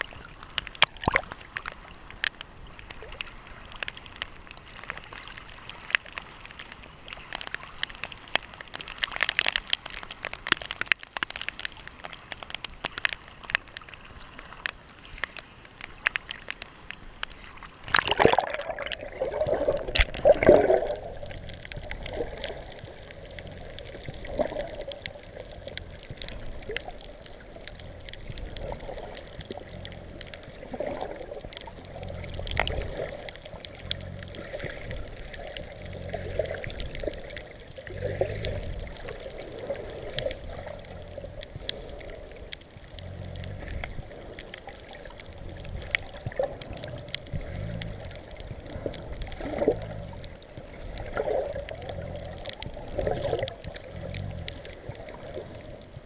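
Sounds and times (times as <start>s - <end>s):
muffled underwater water movement: 0.0s - 56.0s
water splashes: 0.0s - 56.0s.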